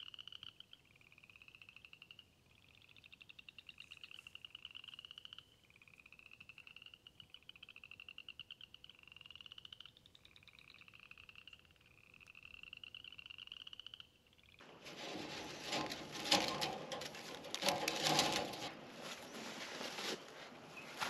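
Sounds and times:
frogs trilling: 0.0s - 14.6s.

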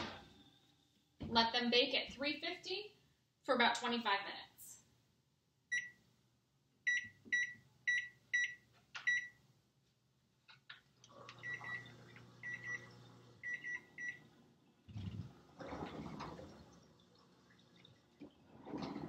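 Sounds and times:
microwave keypad beeping: 5.7s - 6.0s, 6.9s - 9.4s, 11.4s - 14.2s.

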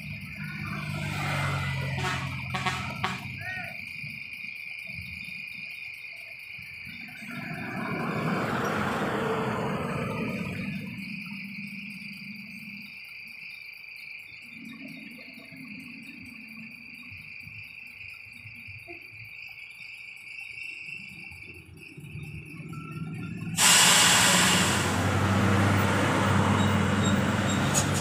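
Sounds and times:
motorcycle: 0.0s - 3.2s, 21.7s - 28.0s
vehicle passing on road: 0.0s - 3.4s, 6.8s - 12.8s, 21.1s - 28.0s
insects droning: 0.0s - 28.0s.

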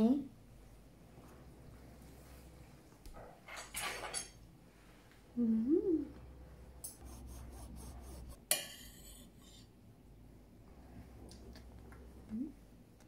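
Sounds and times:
cutlery scraping on a plate: 8.5s - 9.7s.

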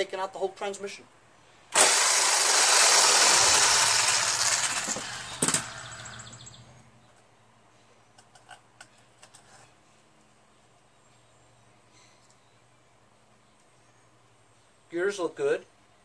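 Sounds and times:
electric drill running: 1.8s - 6.5s.

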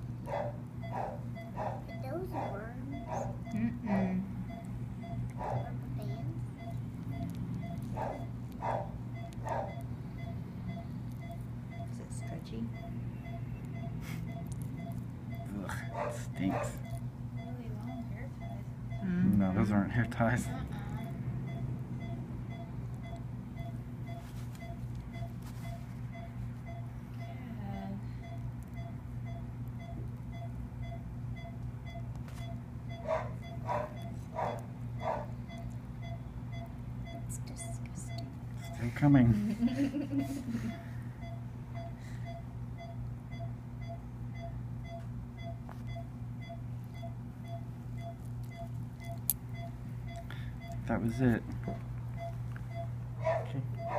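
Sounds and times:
patient monitor beeping: 0.0s - 53.9s
steady low hum: 0.0s - 53.9s.

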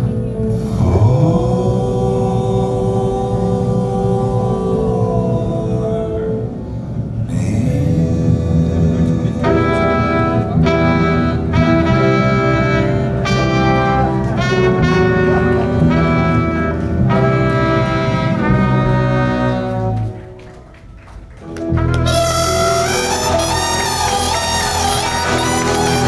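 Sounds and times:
horn section brass chords: 8.6s - 20.6s, 21.4s - 26.0s
swing band playing: 9.4s - 20.6s, 21.4s - 26.0s.

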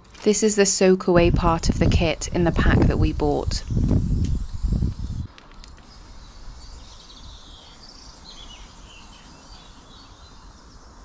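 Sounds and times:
low background noise: 0.0s - 11.0s
small birds chirping faintly: 3.2s - 11.0s.

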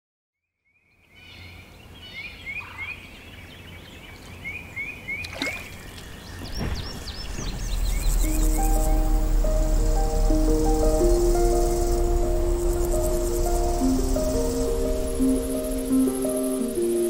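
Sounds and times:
birds chirping: 0.9s - 17.0s
high bird calls: 1.1s - 17.0s
steady low rumble: 6.1s - 17.0s.

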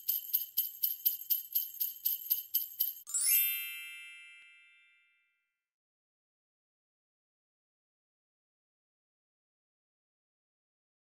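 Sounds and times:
sleigh bells shaking: 0.0s - 4.8s.

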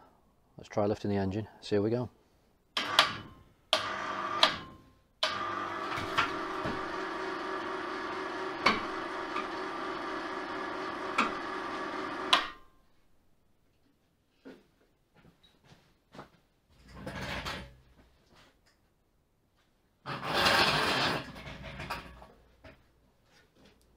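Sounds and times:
electric hoist motor running: 2.8s - 12.6s.

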